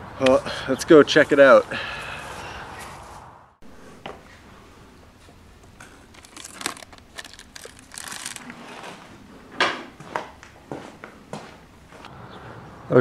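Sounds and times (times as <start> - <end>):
rustling and crinkling: 5.2 - 9.3.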